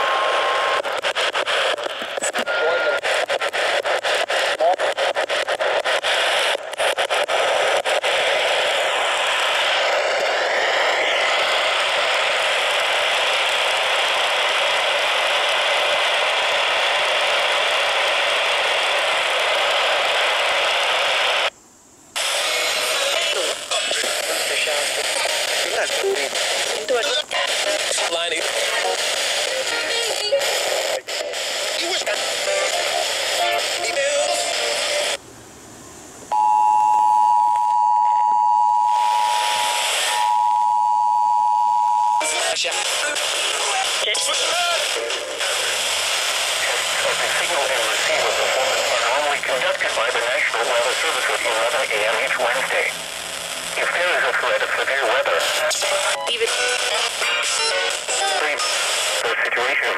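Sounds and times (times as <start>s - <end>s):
radio static hiss: 0.0s - 35.2s, 36.2s - 59.9s
two-tone alert signal: 36.3s - 42.2s.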